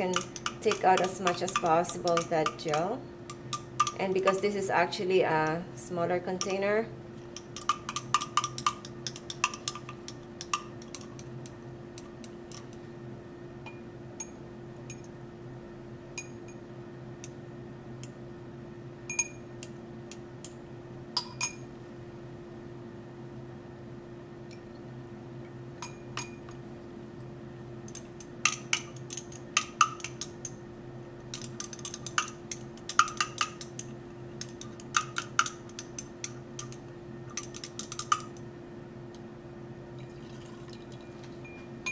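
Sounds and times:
steady low hum: 0.0s - 41.9s
glassware clinking: 21.2s - 21.6s, 25.8s - 26.6s, 40.0s - 41.9s.

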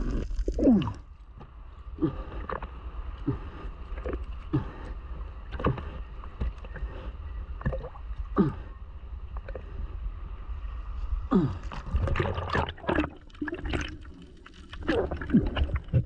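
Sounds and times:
bubbly gurgles: 0.0s - 1.1s, 7.6s - 8.6s, 11.3s - 16.0s
low underwater rumble: 0.0s - 16.0s.

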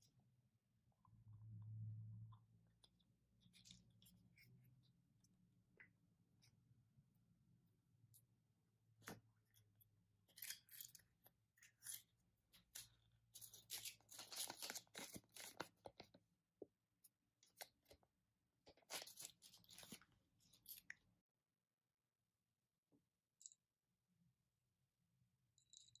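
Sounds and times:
wrapper crinkling and tearing: 13.4s - 16.0s, 18.7s - 20.0s.

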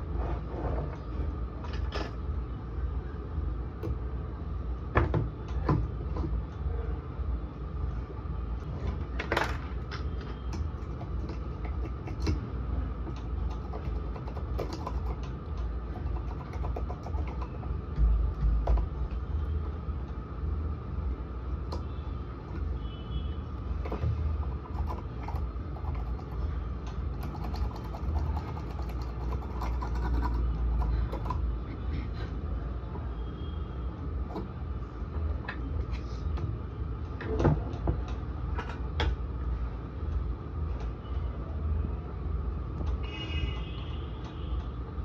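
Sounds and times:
faint hum: 0.0s - 45.0s.

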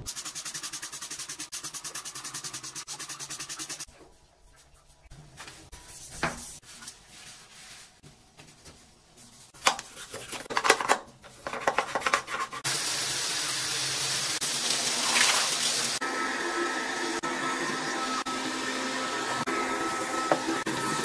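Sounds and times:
sponge and brush scrubbing glass: 0.1s - 8.0s
window vacuum motor whine: 16.0s - 21.0s.

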